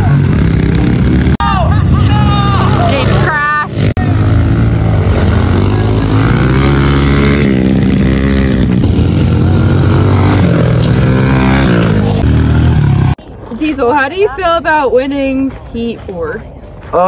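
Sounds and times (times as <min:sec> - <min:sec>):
pit bike engine revving: 0:00.0 - 0:13.2.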